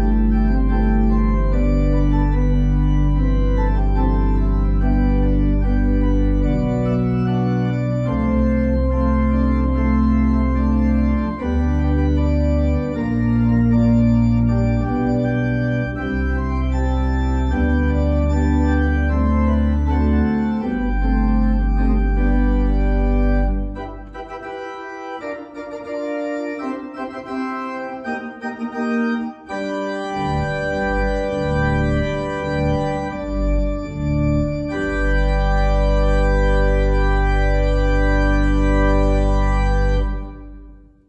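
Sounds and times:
deep organ pedal bass: 0.0s - 41.0s
organ playing held chords: 0.0s - 41.0s.

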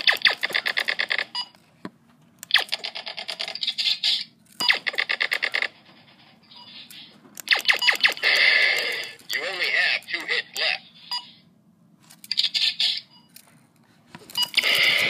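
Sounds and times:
laser tag gun shots: 0.0s - 1.3s, 4.6s - 5.8s, 7.4s - 8.8s.

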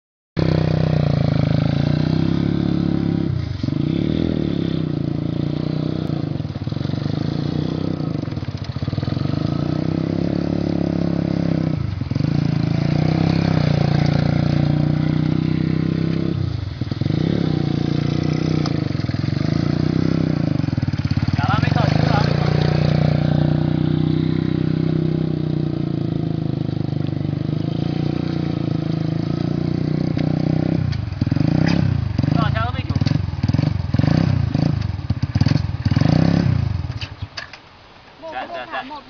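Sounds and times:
trike engine running: 0.4s - 37.1s.

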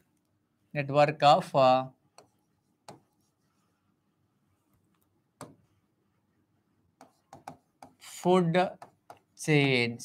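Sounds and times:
stylus pen tapping screen: 2.1s - 3.1s, 5.4s - 5.6s, 7.0s - 8.0s, 8.7s - 9.3s.

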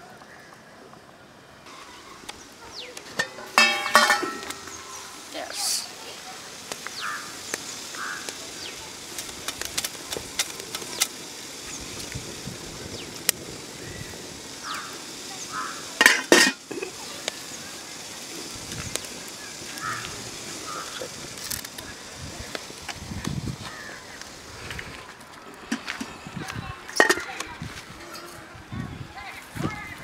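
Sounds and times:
wood fire crackling: 0.4s - 28.3s
fire popping: 1.7s - 28.4s
cookware clattering: 3.1s - 5.1s, 16.0s - 17.0s.

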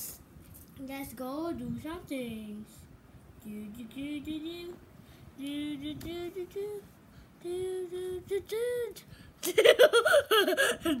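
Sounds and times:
child singing: 3.4s - 4.8s, 5.4s - 6.8s, 7.4s - 9.1s.

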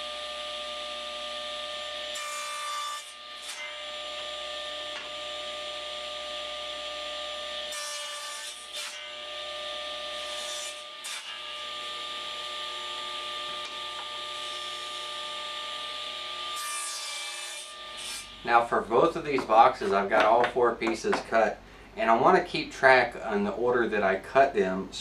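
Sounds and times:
table saw running: 0.0s - 18.4s
saw cutting through wood: 0.0s - 19.0s
wooden knocks: 19.3s - 21.4s.

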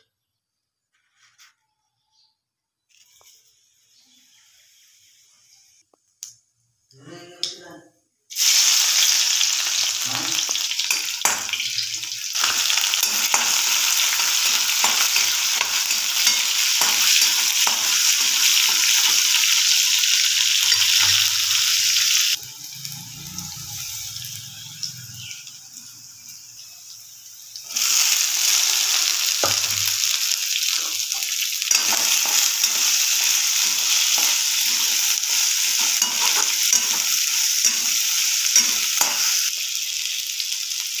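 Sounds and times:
hot oil sizzling: 2.9s - 5.8s, 8.3s - 41.0s
spatula scraping and tapping pan: 13.0s - 19.4s, 31.7s - 39.4s.

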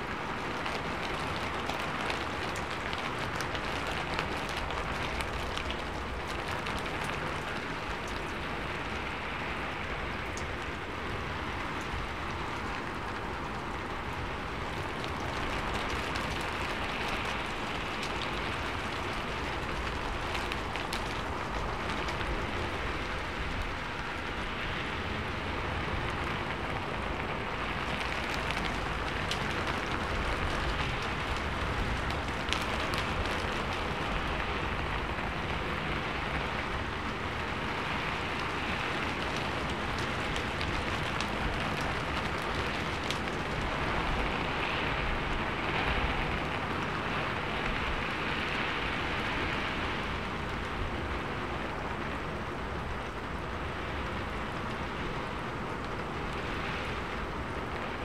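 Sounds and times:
rain on metal roof: 0.0s - 58.0s.

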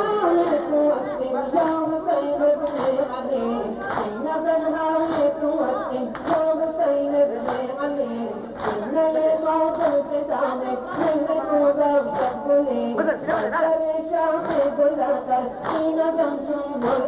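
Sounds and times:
rhythmic chest-beating slaps: 0.0s - 17.0s
man chanting a lament: 13.0s - 13.8s.

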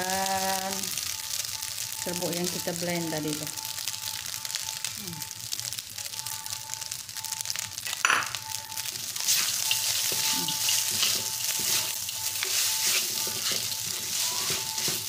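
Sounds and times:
rice sizzling in a wok: 0.0s - 15.0s
spatula scraping a wok: 9.2s - 15.0s.

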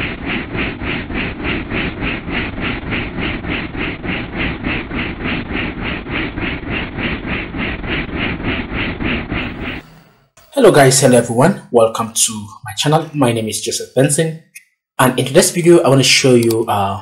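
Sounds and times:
engine and rotor rumble: 0.0s - 10.5s
helicopter rotor beating: 0.0s - 12.2s.

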